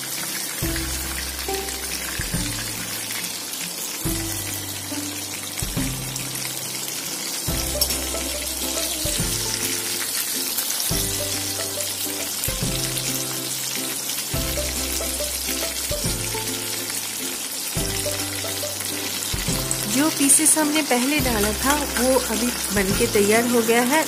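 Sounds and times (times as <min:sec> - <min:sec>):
background music: 0:00.0 - 0:24.0
fish sizzling in hot oil: 0:00.0 - 0:24.0.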